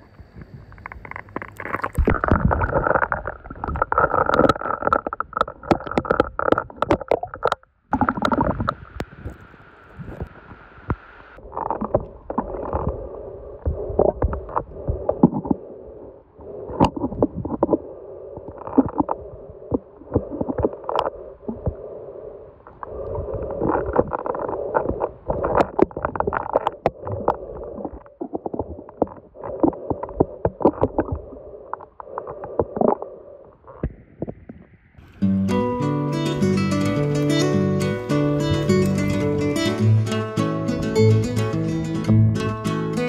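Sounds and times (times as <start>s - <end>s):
steady hiss above water: 0.0s - 3.1s, 8.3s - 33.7s
underwater water sloshing: 0.0s - 35.2s, 36.3s - 39.8s.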